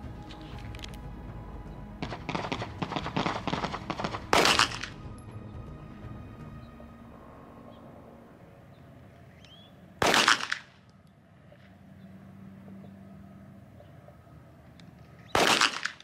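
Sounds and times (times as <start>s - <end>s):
pistol shots: 2.0s - 5.0s, 10.0s - 10.8s, 15.3s - 16.0s.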